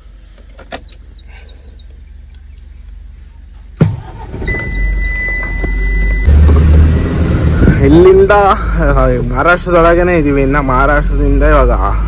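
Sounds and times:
diesel truck engine starting: 3.2s - 12.0s
high electronic beep: 4.5s - 6.3s.

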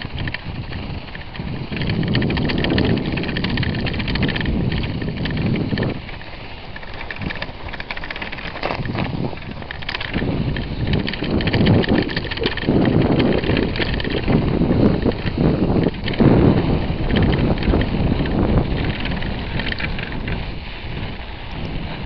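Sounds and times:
crackling and rattling: 0.0s - 22.0s
wind rumbling on microphone: 0.0s - 22.0s.

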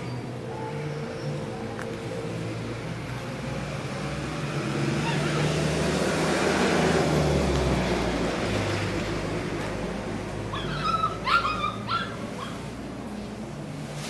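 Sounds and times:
steady background noise: 0.0s - 14.0s
dog yipping: 10.5s - 12.6s.

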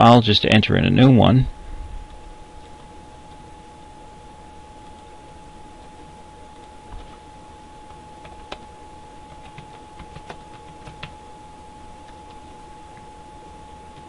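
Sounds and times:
steady tone: 0.0s - 9.2s
keyboard typing: 7.8s - 11.2s.

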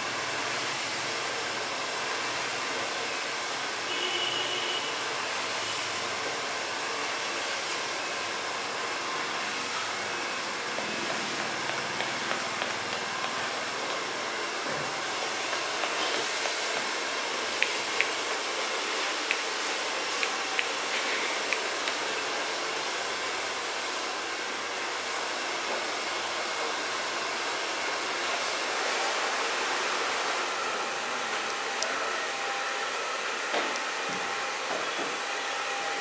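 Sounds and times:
fingertips tapping on face: 10.7s - 14.0s, 15.1s - 16.9s.

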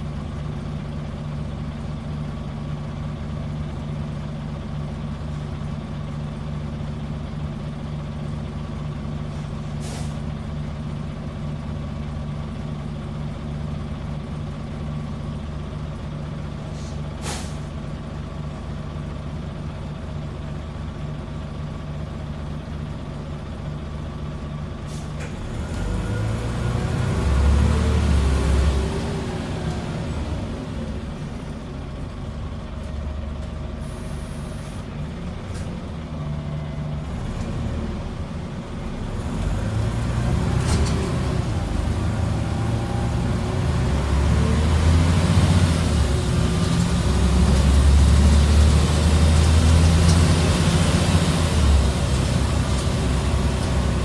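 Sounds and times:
diesel bus engine idling: 0.0s - 54.0s
bus engine revving: 24.9s - 32.6s, 35.5s - 54.0s.

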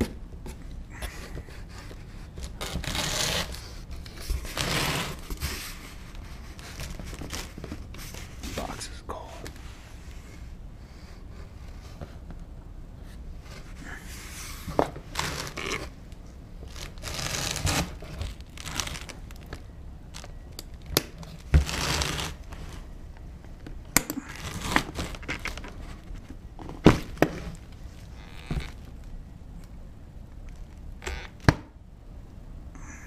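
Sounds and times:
paper and cardboard rustling: 0.0s - 8.9s, 16.6s - 19.6s, 24.2s - 29.0s.

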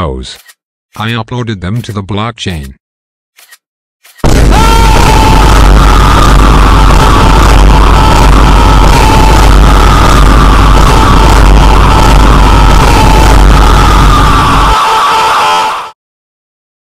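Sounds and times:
loud distorted music: 4.5s - 14.8s.

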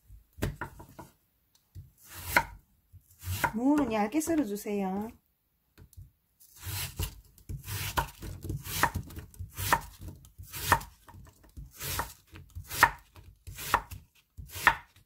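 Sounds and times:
knife slicing on wooden cutting board: 2.0s - 3.6s, 6.5s - 11.0s.

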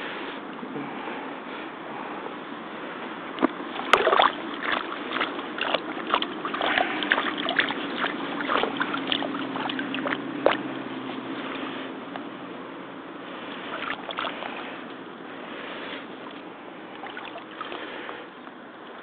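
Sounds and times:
faint steady hum: 0.0s - 19.0s
water splashing and sloshing: 2.9s - 12.0s, 13.2s - 19.0s.

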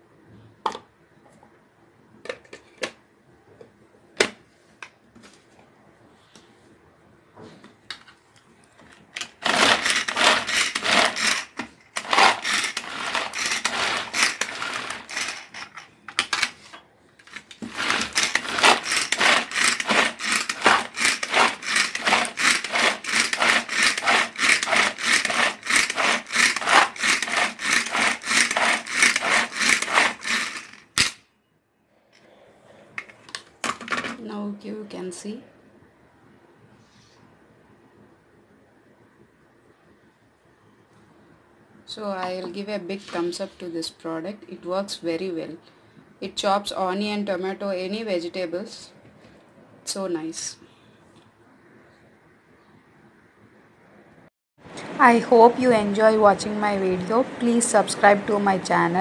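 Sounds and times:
chopper blades whirring clatter: 9.4s - 15.6s, 17.6s - 30.8s.

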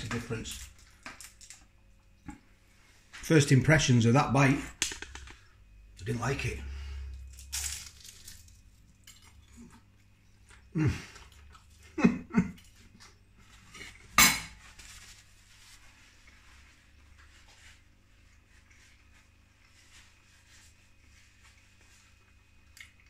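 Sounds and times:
cutlery clatter: 14.2s - 14.6s.

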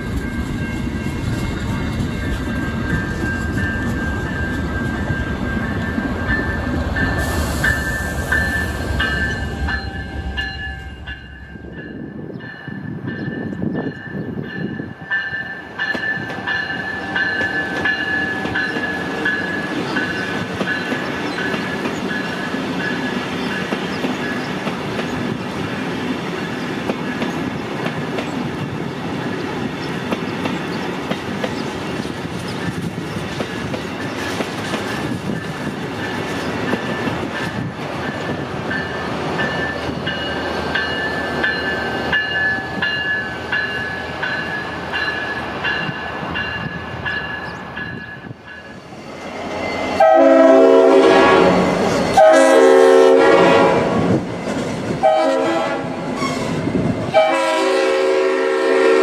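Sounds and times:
train wheels clicking and rumbling: 0.0s - 50.0s, 51.0s - 57.2s
repeating high ringing: 0.2s - 20.9s.

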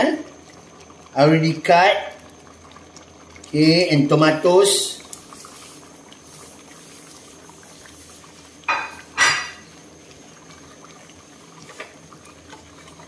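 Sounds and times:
pot simmering: 0.0s - 13.0s
kitchenware clattering: 8.7s - 9.6s.

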